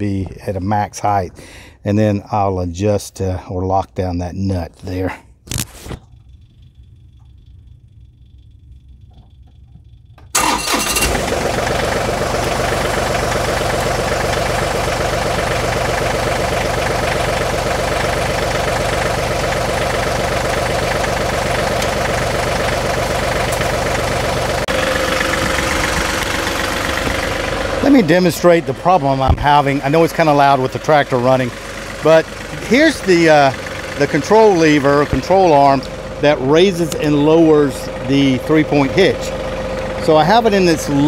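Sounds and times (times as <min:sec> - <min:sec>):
tractor engine idling: 0:06.3 - 0:41.0
tractor diesel engine starting: 0:10.3 - 0:41.0.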